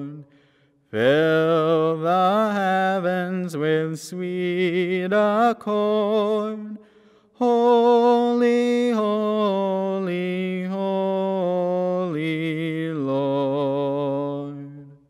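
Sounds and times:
man singing with vibrato: 0.0s - 15.0s.

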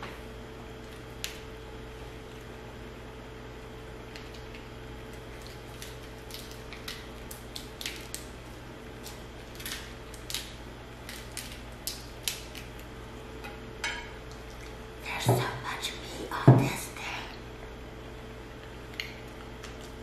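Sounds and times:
crab shells cracking: 4.1s - 12.9s.

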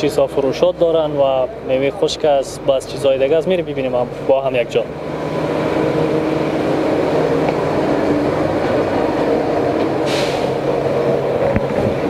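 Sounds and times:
city street traffic: 0.0s - 12.0s
short hiss: 10.0s - 10.6s.

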